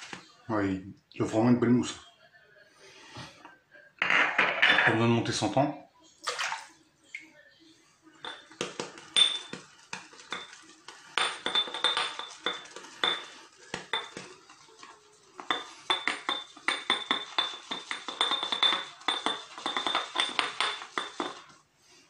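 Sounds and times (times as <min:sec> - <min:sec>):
brush clinking against bowl: 0:08.1 - 0:21.6.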